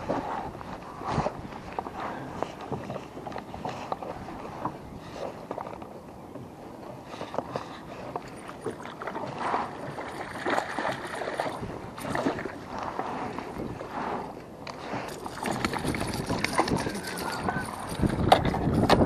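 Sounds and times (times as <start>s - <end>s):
fish thrashing and splashing: 8.6s - 12.6s, 15.0s - 18.5s.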